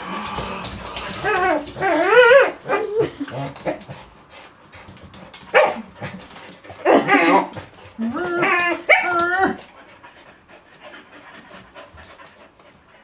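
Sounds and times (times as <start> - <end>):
dog whining playfully: 1.2 - 3.8, 6.8 - 9.7.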